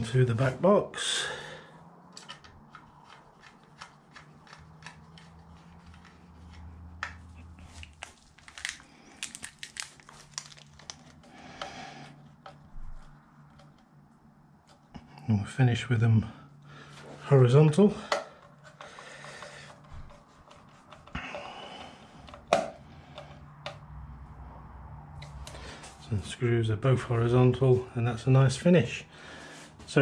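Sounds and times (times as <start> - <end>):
cable handling clicks and scrapes: 2.1 - 14.0, 18.0 - 23.9.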